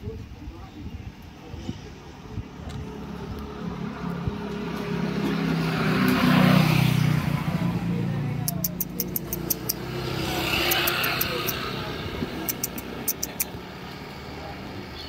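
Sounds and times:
motor vehicle passing by: 2.2s - 14.9s
sharp high ticks: 8.4s - 11.7s, 12.4s - 13.6s.

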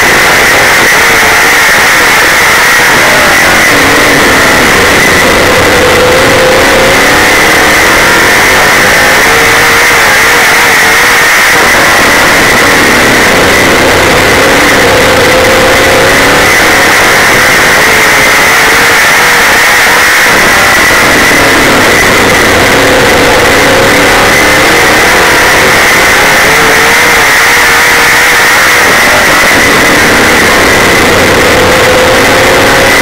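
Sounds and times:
racing car engine: 0.0s - 33.0s.

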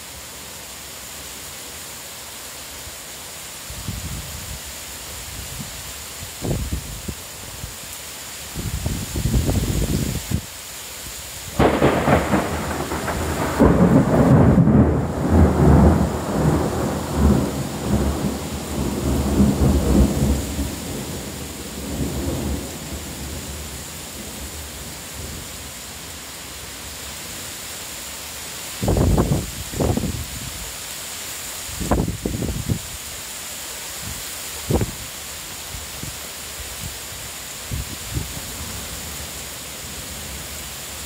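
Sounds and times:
heavy rain hissing: 0.0s - 41.0s
thunder rumbling: 11.5s - 25.4s.

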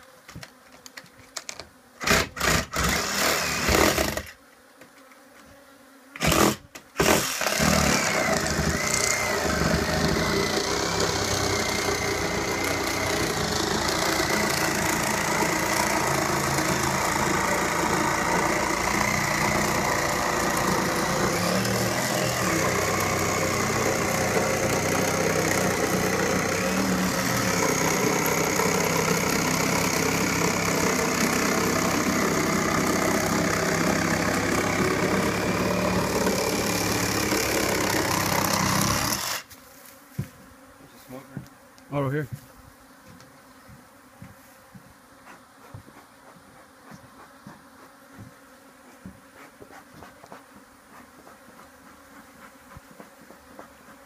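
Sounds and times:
reciprocating saw cutting plywood: 2.0s - 4.4s, 6.1s - 39.6s.

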